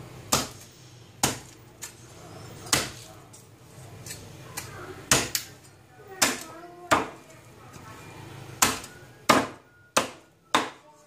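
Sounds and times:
cleaver chopping on wooden board: 8.6s - 10.8s.

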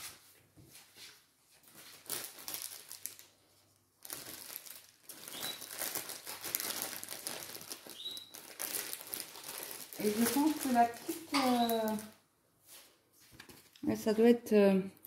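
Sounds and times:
packaging crinkling: 1.7s - 12.2s.

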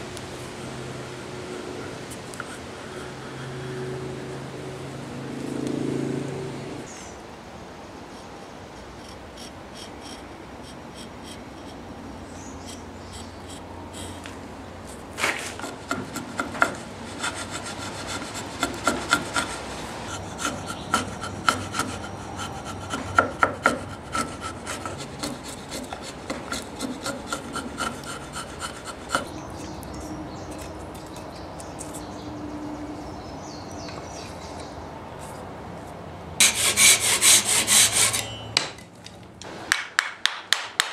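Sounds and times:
chisel scraping wood: 8.8s - 32.1s, 35.2s - 38.5s.

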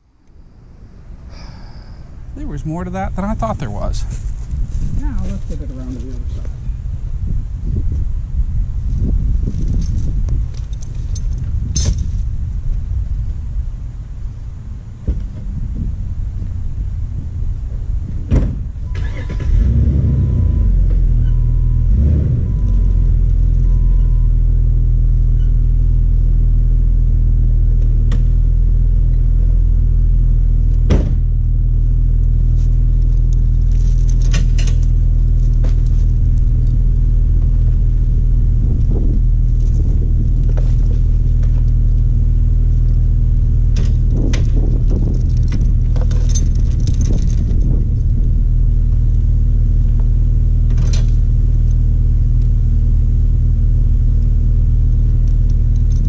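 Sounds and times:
metal chain clinking: 9.4s - 12.4s, 22.4s - 24.2s, 33.1s - 36.2s, 38.7s - 41.4s, 44.0s - 48.1s, 55.7s - 56.0s
car engine idling: 12.3s - 56.0s.

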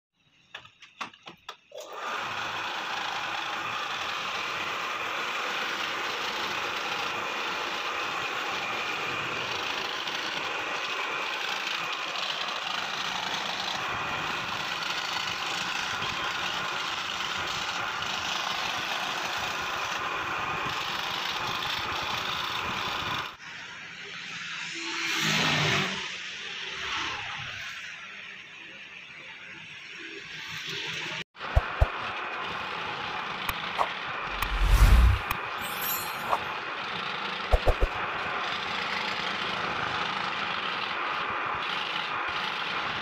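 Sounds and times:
scroll saw cutting wood: 31.5s - 32.0s, 33.5s - 36.5s, 37.5s - 38.0s.

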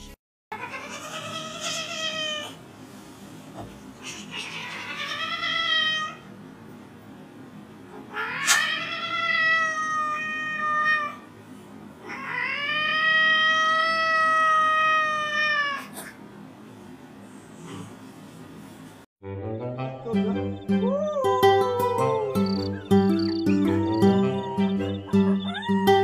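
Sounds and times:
cat yowling: 0.5s - 2.6s, 8.1s - 11.2s, 12.0s - 15.9s, 20.1s - 26.0s.

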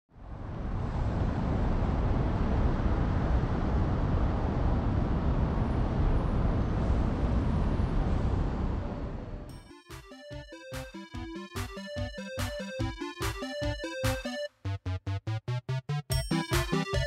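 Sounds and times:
city traffic rumble: 0.1s - 9.6s.

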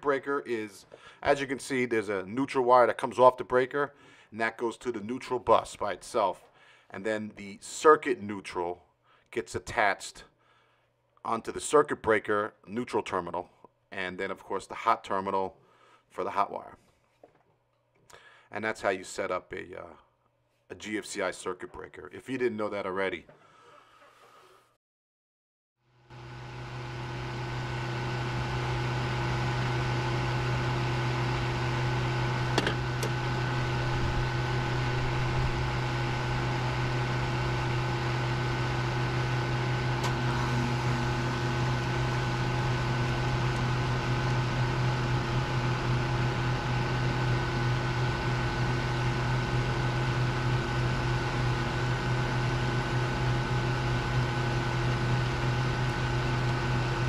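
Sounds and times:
electric motor humming: 26.1s - 57.0s.

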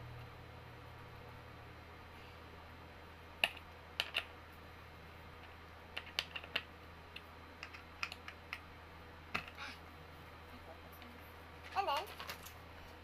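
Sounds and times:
small parts clicking on a table: 3.4s - 4.3s, 6.0s - 8.6s.

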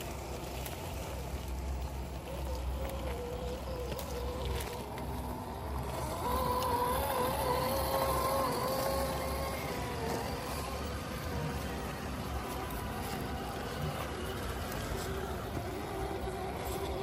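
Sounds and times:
electric motor and gear whine: 0.0s - 17.0s.

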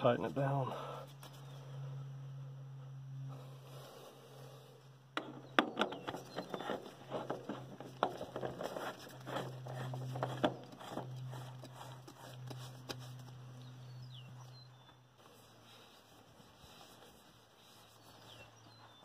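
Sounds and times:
steady low hum: 0.0s - 19.0s
filter rubbing and clicking: 5.2s - 13.4s.

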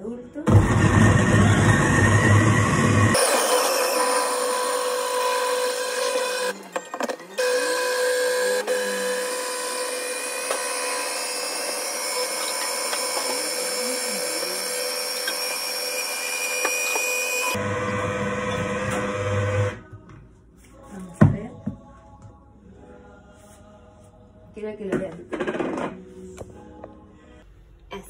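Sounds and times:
food chopper motor whining: 0.5s - 19.8s.

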